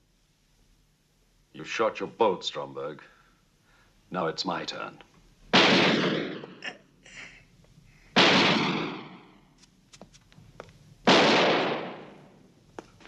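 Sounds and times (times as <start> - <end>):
pistol shots echoing: 5.5 - 6.6, 8.2 - 9.4, 11.1 - 12.4.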